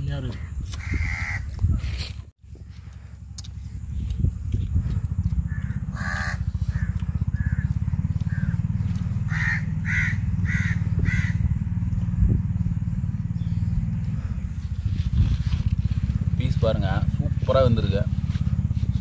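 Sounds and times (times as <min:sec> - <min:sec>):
bird calling: 0:00.3 - 0:02.0, 0:02.6 - 0:11.8
steady low engine: 0:02.3 - 0:19.0.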